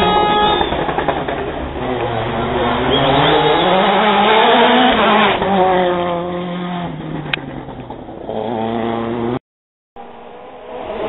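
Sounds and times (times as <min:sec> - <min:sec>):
rally car engine passing at speed: 0:00.7 - 0:09.4.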